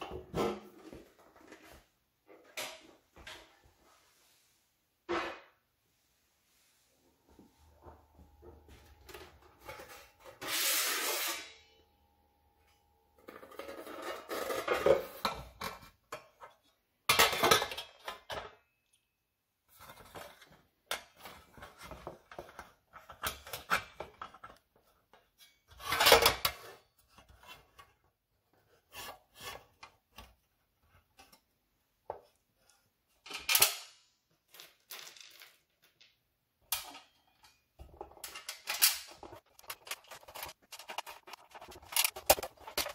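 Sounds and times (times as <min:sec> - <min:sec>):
metal rubbing scrapes: 0:10.4 - 0:11.7.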